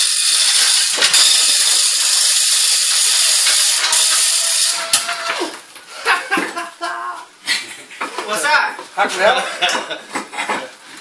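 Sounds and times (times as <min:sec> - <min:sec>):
chain hoist ratcheting clatter: 0:00.0 - 0:05.4.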